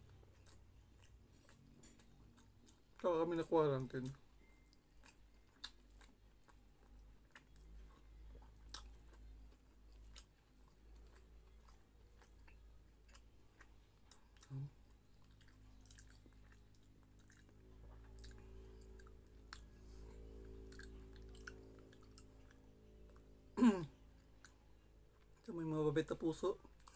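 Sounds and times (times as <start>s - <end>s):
faint chewing: 0.0s - 26.9s
short low hum: 17.6s - 24.1s.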